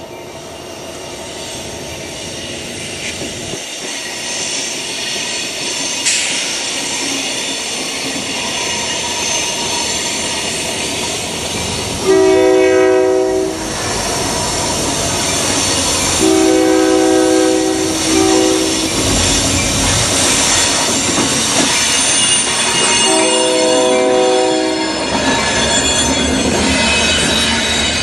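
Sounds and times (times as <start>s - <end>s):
diesel locomotives running: 0.0s - 28.0s
train horn blasts: 12.0s - 13.8s, 16.2s - 19.3s, 23.0s - 25.1s.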